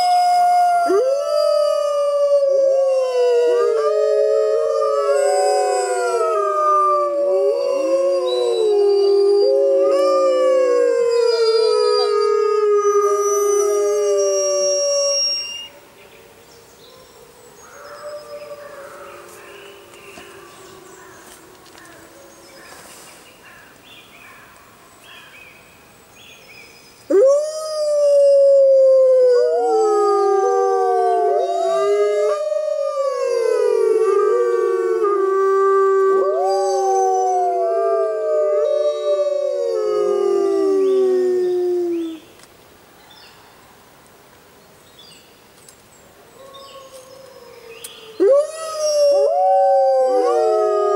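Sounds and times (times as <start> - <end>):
wolves howling: 0.0 - 15.7, 27.1 - 42.2, 46.4 - 50.9.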